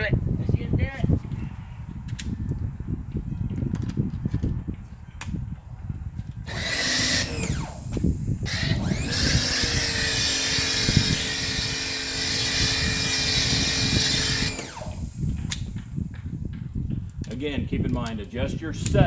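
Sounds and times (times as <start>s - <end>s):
pressure washer spraying: 6.5s - 15.4s
pressure washer motor hum: 6.5s - 16.0s.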